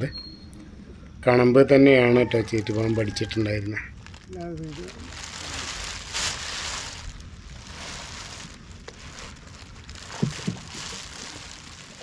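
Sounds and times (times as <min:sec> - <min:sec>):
steady outdoor hiss: 0:00.0 - 0:12.0
plastic poncho rustling: 0:03.1 - 0:12.0
dull knocks: 0:10.1 - 0:10.7.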